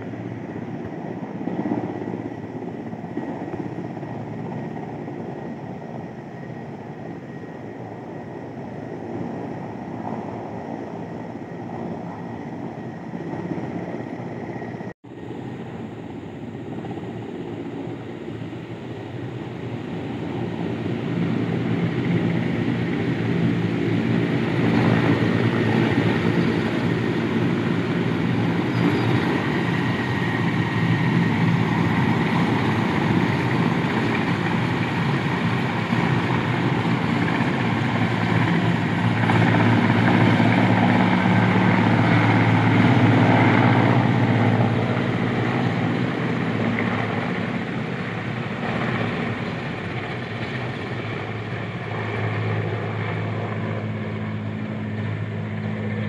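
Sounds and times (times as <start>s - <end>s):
helicopter rotor and engines: 0.0s - 56.0s.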